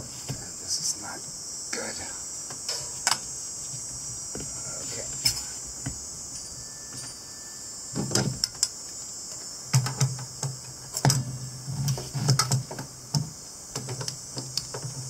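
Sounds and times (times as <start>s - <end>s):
insect chirring: 0.0s - 15.0s.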